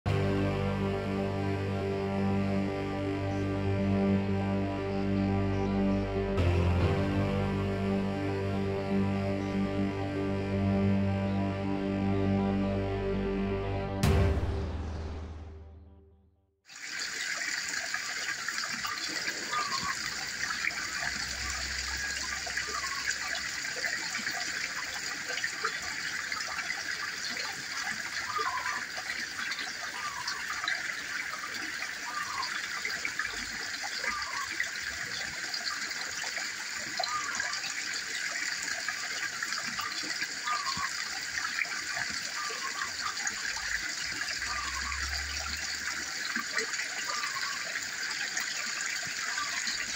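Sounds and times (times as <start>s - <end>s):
water splashing into pond: 16.7s - 49.9s.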